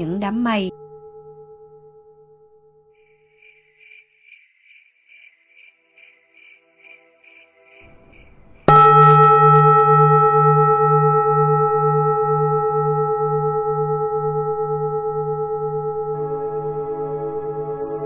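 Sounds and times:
large bell ringing: 7.9 - 18.0.

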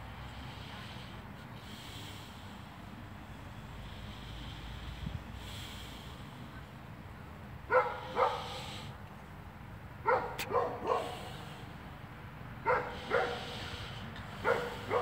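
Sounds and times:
dog barking: 7.7 - 8.7, 10.0 - 11.4, 12.6 - 13.7, 14.4 - 15.0.

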